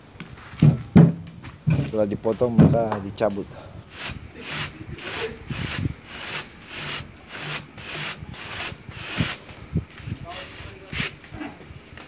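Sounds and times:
metal tool scraping steel mould: 0:03.9 - 0:09.4.

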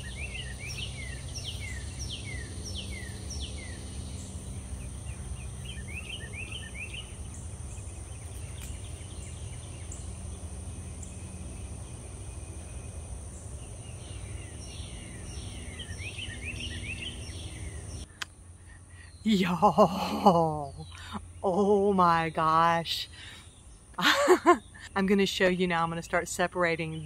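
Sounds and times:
high insect drone: 0:00.0 - 0:20.4
songbirds chirping: 0:00.0 - 0:27.0.

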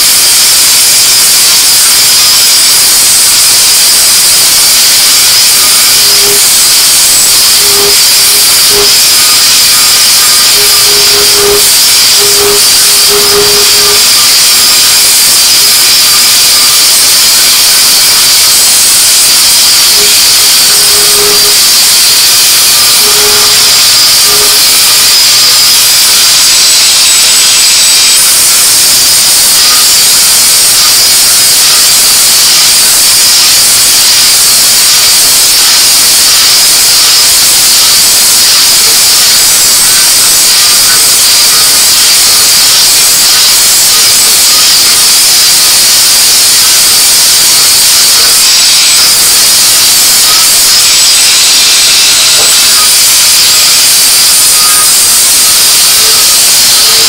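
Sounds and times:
angle grinder grinding metal: 0:00.0 - 0:57.0
faint hum: 0:05.3 - 0:16.7, 0:17.3 - 0:26.7.

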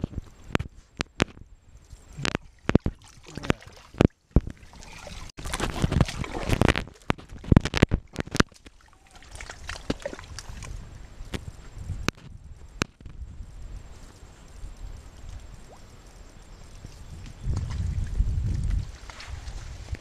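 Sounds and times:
mud and water squelching: 0:02.0 - 0:11.6
sharp clicks and knocks: 0:05.5 - 0:08.7.

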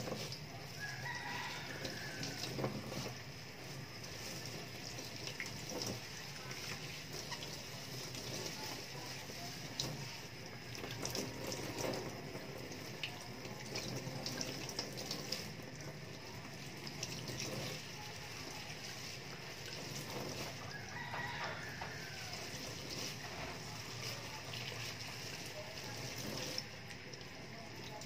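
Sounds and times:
rooster crowing: 0:00.5 - 0:03.1, 0:20.4 - 0:23.5
tap water splashing into sink: 0:01.6 - 0:03.2, 0:04.2 - 0:08.8.

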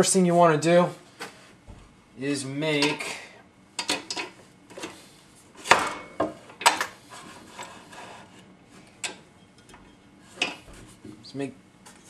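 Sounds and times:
wood sliding on metal table: 0:07.1 - 0:08.5.

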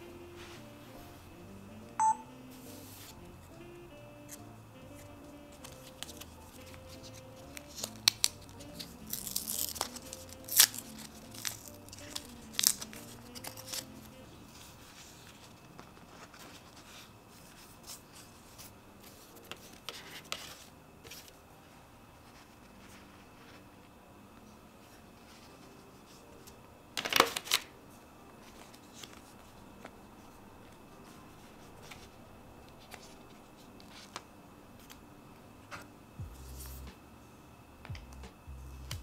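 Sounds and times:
soft background music: 0:00.0 - 0:39.0
wet-wipe sachet tearing: 0:05.0 - 0:14.2
packet crinkling and rustling: 0:05.6 - 0:16.8, 0:27.0 - 0:27.7.

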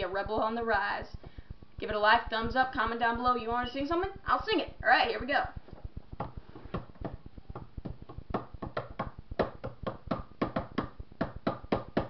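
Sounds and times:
hands tapping a rhythm: 0:05.5 - 0:12.0.

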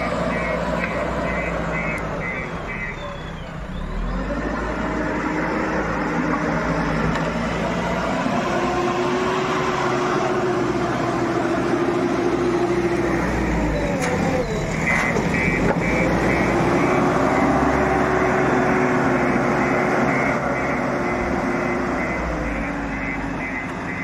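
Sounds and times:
reversing alarm beeping: 0:00.0 - 0:04.1, 0:13.1 - 0:24.0
diesel engine under load: 0:00.0 - 0:24.0.

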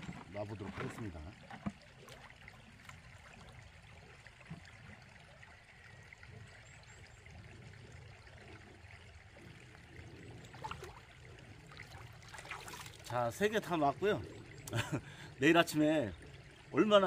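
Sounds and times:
water splashes and stone knocks: 0:00.0 - 0:05.2, 0:10.4 - 0:14.0
stream trickling: 0:00.0 - 0:17.0.

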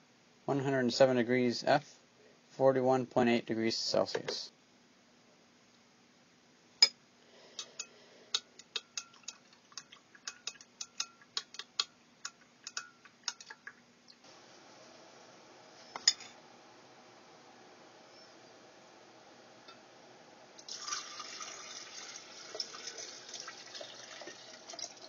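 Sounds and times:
metal spoon clinking on glass jar: 0:08.6 - 0:13.6.

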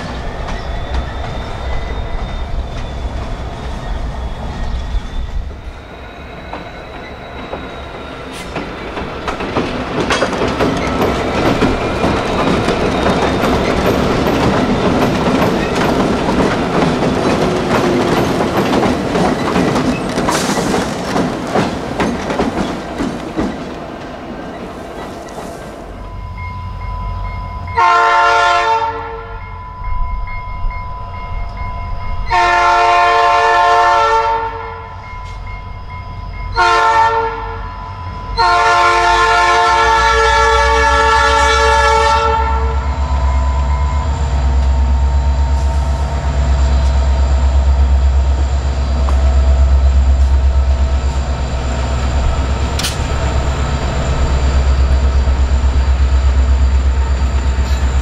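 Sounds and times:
train wheel clatter: 0:00.0 - 0:05.6, 0:06.3 - 0:26.0, 0:43.1 - 0:58.0
locomotive air horn: 0:27.8 - 0:29.4, 0:32.3 - 0:35.0, 0:36.6 - 0:43.0
locomotive engine rumble: 0:38.1 - 0:58.0.

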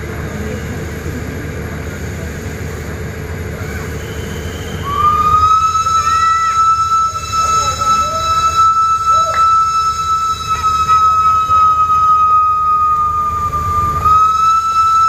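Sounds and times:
steam locomotive rumbling: 0:00.0 - 0:15.0
steam whistle: 0:03.7 - 0:15.0.

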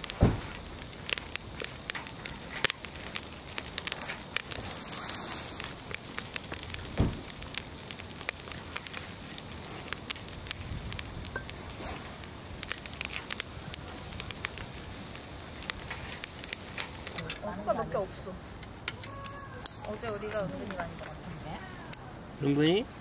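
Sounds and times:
fire crackling and popping: 0:00.0 - 0:23.0
dull thump: 0:00.2 - 0:00.6, 0:06.9 - 0:07.3.

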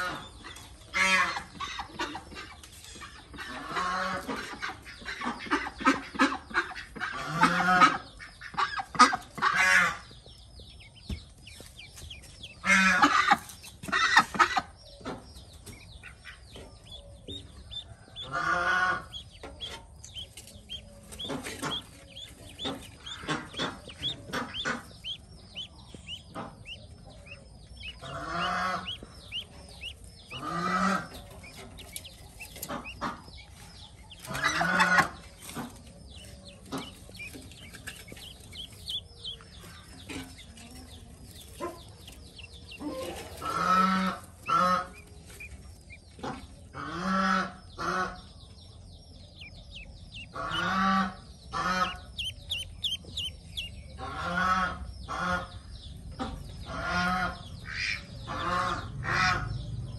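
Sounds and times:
ducklings peeping: 0:00.0 - 0:59.9
adult duck calling: 0:20.1 - 0:31.9, 0:50.2 - 0:55.5.

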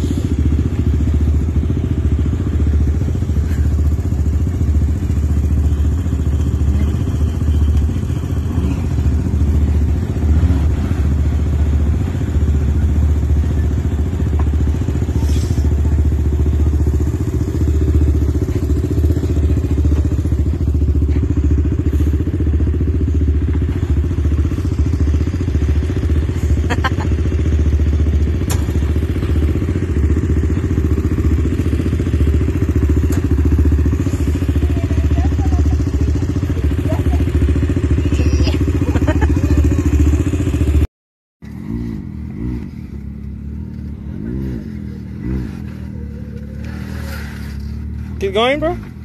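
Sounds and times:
engine running and revving: 0:00.0 - 0:49.0.

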